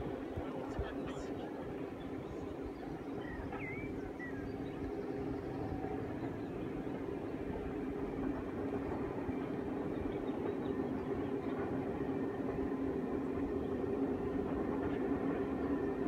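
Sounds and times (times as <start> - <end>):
steam train rumbling: 0.0 - 16.0
bird chirps: 2.2 - 6.3.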